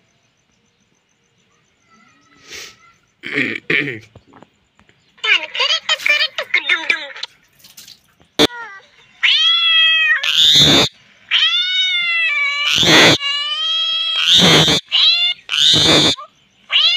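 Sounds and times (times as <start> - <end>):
parakeet calling and screeching: 9.2 - 16.9.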